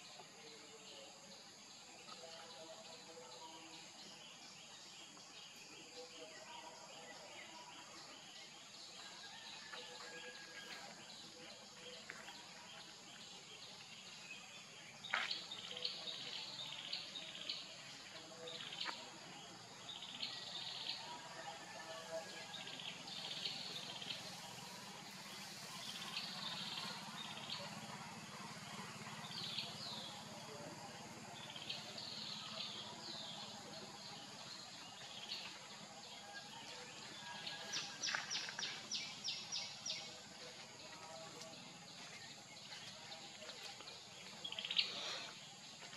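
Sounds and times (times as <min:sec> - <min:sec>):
steady high hiss: 0:23.5 - 0:27.6.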